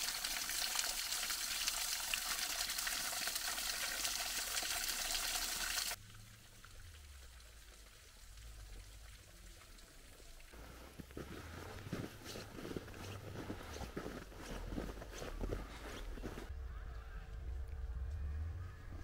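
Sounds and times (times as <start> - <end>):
small waterfall splashing: 0.0 - 10.7
faint low rumble: 6.0 - 19.0.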